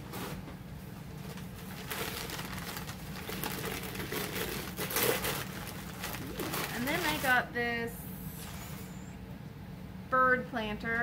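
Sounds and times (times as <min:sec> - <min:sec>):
rustling of items: 0:00.0 - 0:07.5
steady low hum: 0:00.0 - 0:11.0.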